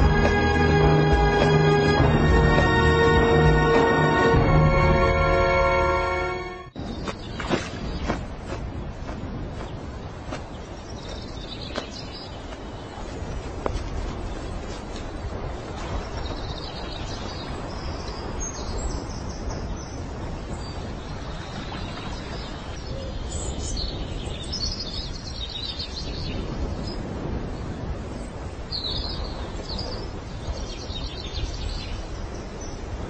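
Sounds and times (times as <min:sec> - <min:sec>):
outdoor background noise: 0:00.0 - 0:33.0.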